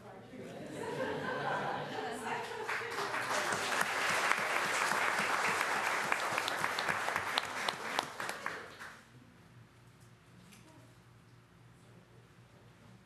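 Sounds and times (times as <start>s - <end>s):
crowd applauding: 2.4s - 9.0s.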